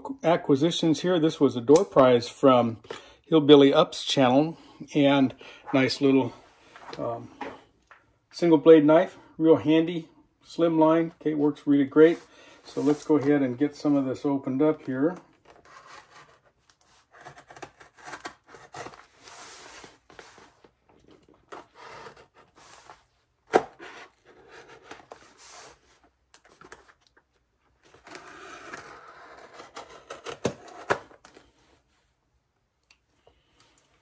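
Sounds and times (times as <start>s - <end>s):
knife slitting cardboard: 15.6s - 20.5s.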